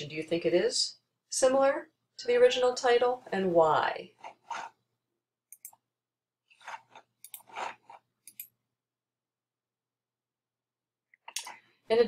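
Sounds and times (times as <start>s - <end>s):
computer mouse clicks: 5.5s - 5.8s, 7.2s - 8.6s.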